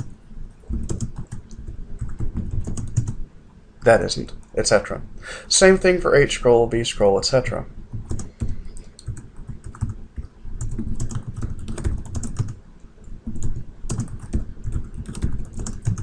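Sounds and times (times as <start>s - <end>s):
typing on computer keyboard: 0.0s - 3.2s, 8.0s - 12.6s, 13.2s - 16.0s.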